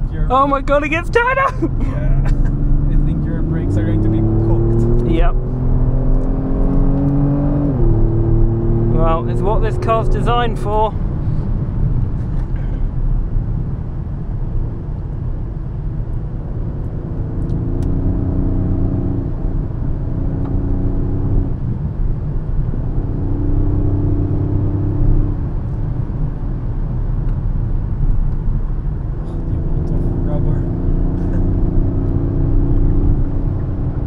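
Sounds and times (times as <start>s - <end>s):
car engine: 0.0s - 34.0s
tyre and road rumble: 0.0s - 34.0s.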